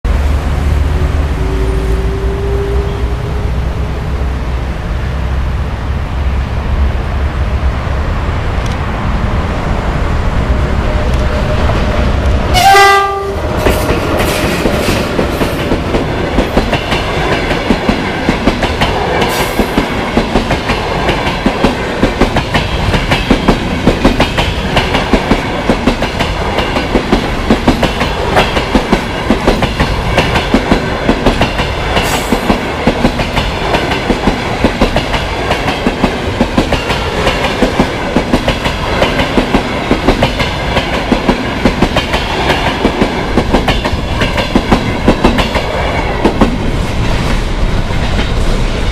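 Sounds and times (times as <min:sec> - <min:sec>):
locomotive horn blast: 0:01.3 - 0:03.7, 0:12.5 - 0:13.5.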